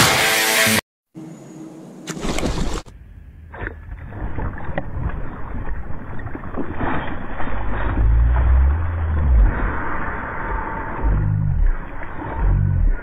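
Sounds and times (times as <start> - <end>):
low rumble: 2.9 - 13.0.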